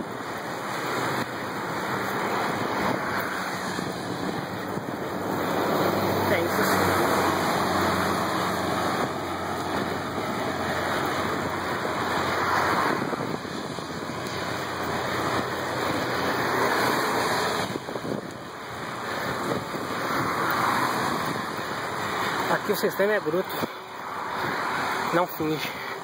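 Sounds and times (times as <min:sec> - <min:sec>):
wind rushing over microphone: 0:00.0 - 0:26.0.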